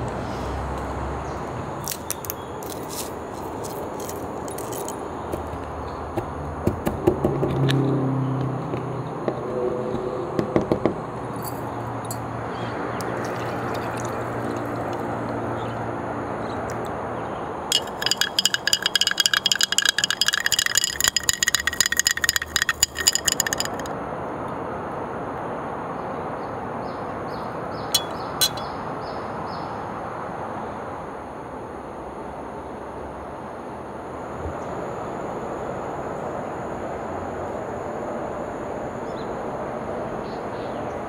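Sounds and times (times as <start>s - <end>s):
straw clinking against glass: 17.7s - 23.9s, 28.0s - 28.7s.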